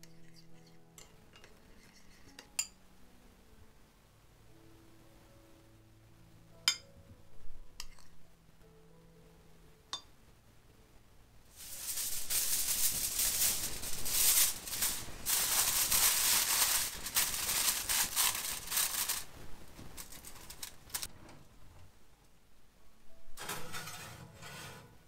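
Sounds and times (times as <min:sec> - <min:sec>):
aluminium foil crinkling: 0:11.5 - 0:21.1.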